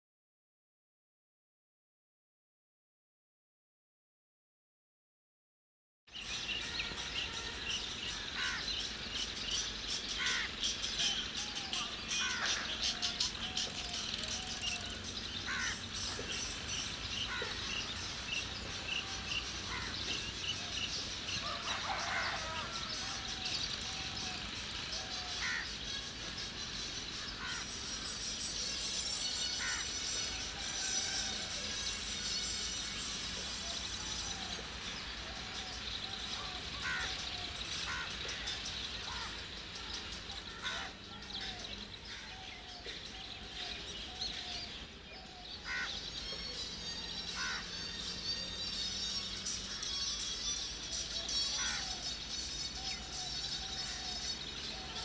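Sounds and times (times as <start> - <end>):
birds chirping: 6.1 - 55.0
steady outdoor hiss: 6.1 - 55.0
bird warbling: 6.6 - 8.7, 10.1 - 26.1, 27.2 - 27.7, 51.2 - 52.2.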